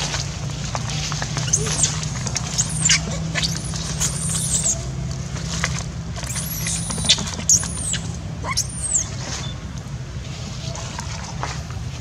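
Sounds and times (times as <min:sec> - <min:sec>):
low engine hum: 0:00.0 - 0:12.0
young monkey screaming: 0:01.4 - 0:04.9, 0:06.2 - 0:09.5.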